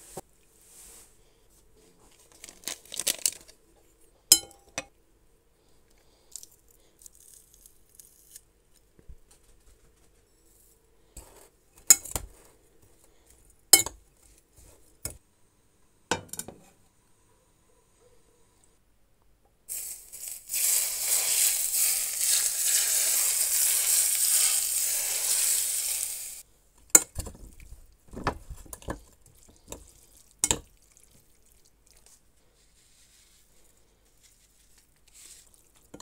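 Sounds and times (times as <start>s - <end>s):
spice shaken from paper packet: 19.7s - 26.4s.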